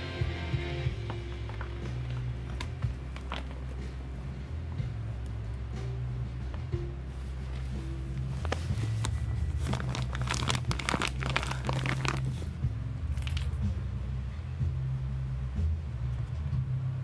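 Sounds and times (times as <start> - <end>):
steady low hum: 0.0 - 17.0
bag crinkling and rustling: 7.4 - 12.5.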